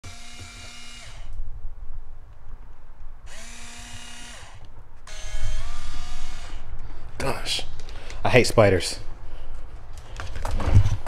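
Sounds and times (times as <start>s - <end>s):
electric pump whining: 0.0s - 1.4s, 3.3s - 6.7s.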